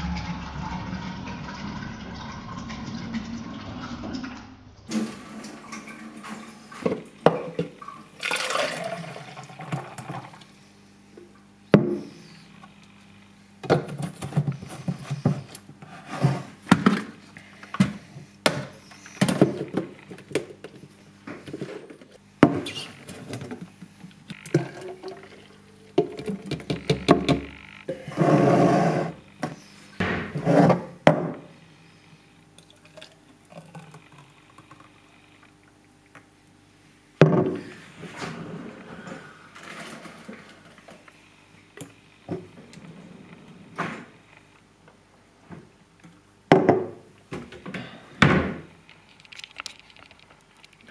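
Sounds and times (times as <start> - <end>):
liquid pouring and sloshing: 0.0 - 10.4, 24.4 - 26.5, 32.6 - 34.9.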